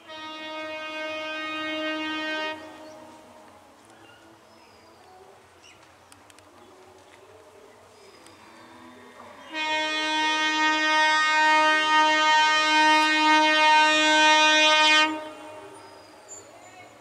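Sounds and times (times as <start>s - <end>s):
train horn blast: 0.0s - 3.5s, 8.9s - 16.1s.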